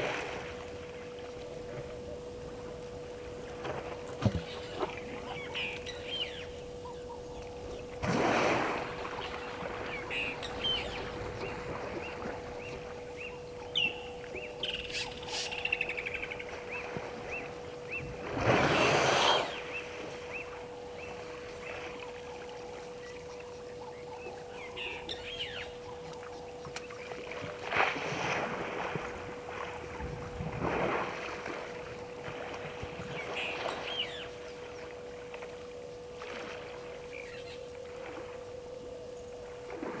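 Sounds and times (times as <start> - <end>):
steady hum: 0.0 - 40.0
birds chirping: 4.4 - 8.0, 9.1 - 18.2, 19.4 - 27.4, 32.6 - 37.8
elephant splashing in water: 8.0 - 10.1, 18.2 - 19.8.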